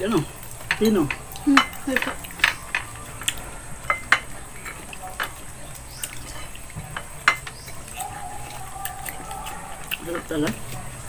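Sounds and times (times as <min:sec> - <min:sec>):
wet smacking and chewing: 0:00.0 - 0:11.0.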